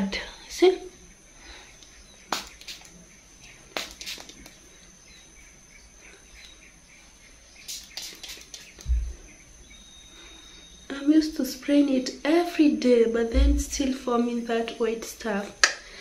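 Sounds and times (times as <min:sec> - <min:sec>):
hair spray bursts: 0:02.3 - 0:02.9, 0:03.7 - 0:04.6, 0:07.6 - 0:08.9
dull low bump: 0:08.9 - 0:09.2.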